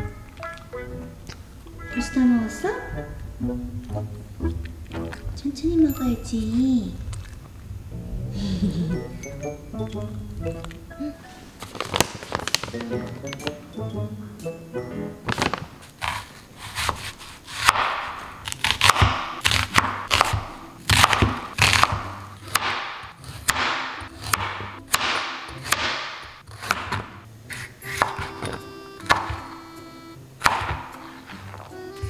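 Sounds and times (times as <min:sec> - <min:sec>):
knife cutting vegetables: 0:15.3 - 0:29.7.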